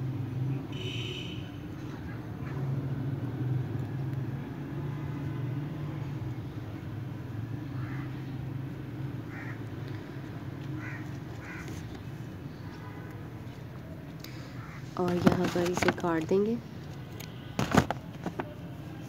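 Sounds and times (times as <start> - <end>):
bird cawing: 7.6 - 8.5, 9.2 - 12.6, 14.3 - 15.0.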